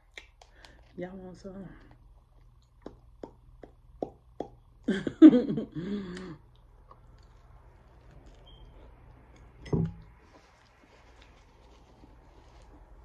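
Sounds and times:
wet mouth clicks and smacks: 0:00.0 - 0:00.8, 0:02.4 - 0:04.6
quiet chewing: 0:01.8 - 0:04.3, 0:06.2 - 0:09.6.

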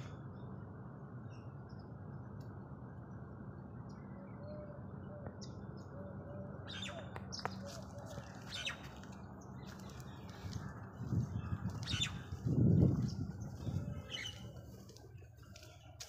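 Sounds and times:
leaves and twigs rustling: 0:07.5 - 0:16.0.

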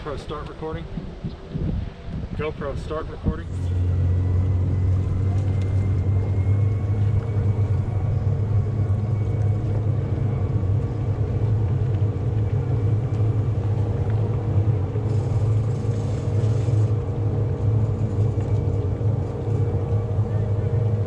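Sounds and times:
faint whining tones: 0:00.0 - 0:21.0
electric motor humming: 0:03.5 - 0:20.9.

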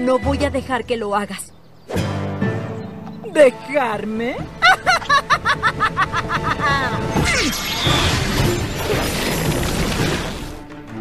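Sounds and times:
dramatic orchestral music: 0:02.0 - 0:11.0
cartoon villain cackling laugh: 0:04.6 - 0:07.1
crash-like magic sound effect: 0:07.2 - 0:10.6.

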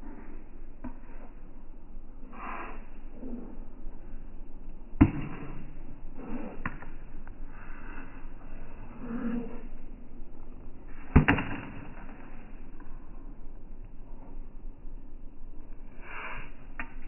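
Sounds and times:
plastic ball struck by paddle: 0:11.2 - 0:11.9.

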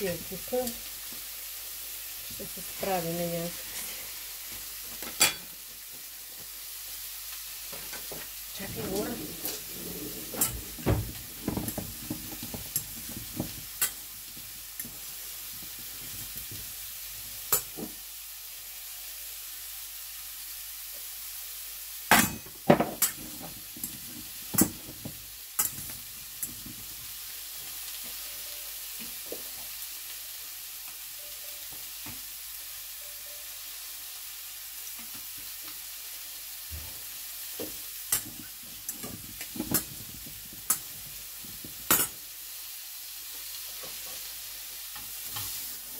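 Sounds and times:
meat sizzling in a pan: 0:00.0 - 0:45.9
kitchen clicks and knocks: 0:38.1 - 0:42.2.

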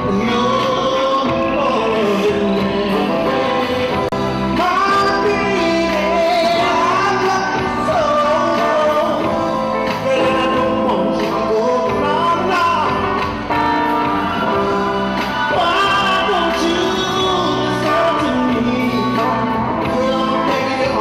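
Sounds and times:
man singing: 0:00.0 - 0:21.0
soul band playing: 0:00.0 - 0:21.0.

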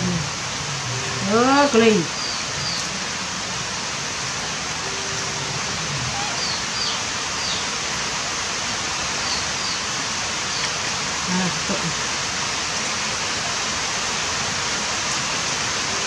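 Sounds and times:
running water rushing: 0:00.0 - 0:16.0
faint high chirps: 0:04.8 - 0:07.6.

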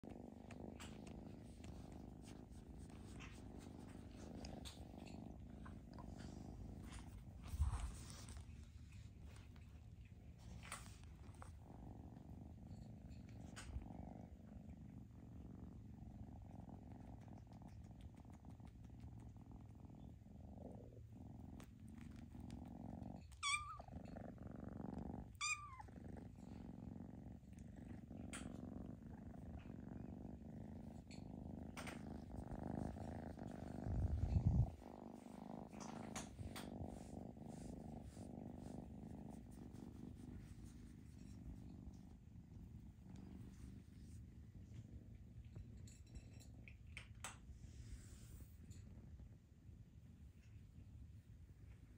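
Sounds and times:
kitten purring: 0:00.0 - 0:51.9.

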